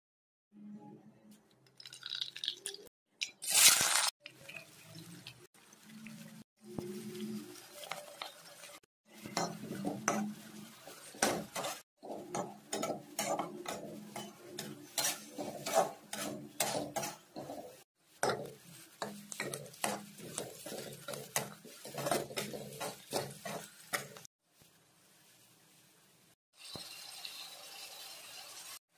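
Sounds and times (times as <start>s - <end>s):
metal spatula scraping a pan: 6.7s - 24.3s.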